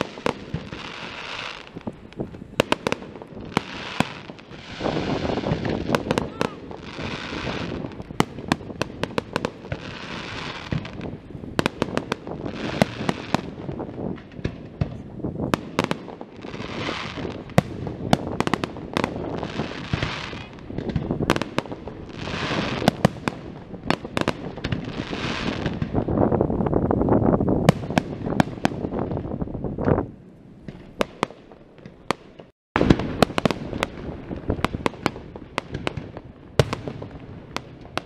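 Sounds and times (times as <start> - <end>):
firework hissing crackle: 0.0 - 30.0
firework bangs: 0.0 - 38.0.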